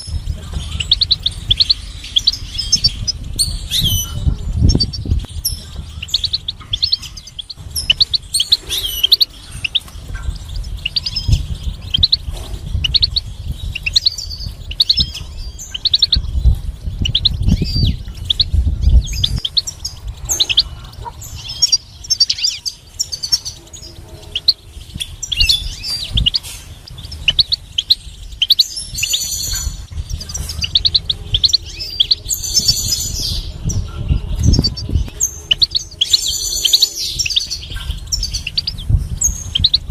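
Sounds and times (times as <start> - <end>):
bird twittering and trilling: 0.0 - 39.9
low rumble: 0.0 - 39.9.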